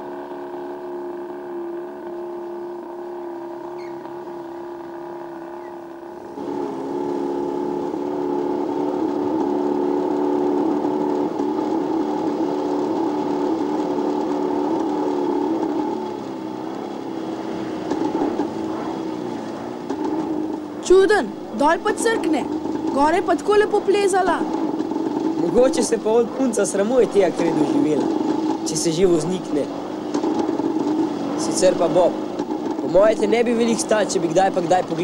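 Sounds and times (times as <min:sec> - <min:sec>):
car engine droning whine: 0:00.0 - 0:35.0.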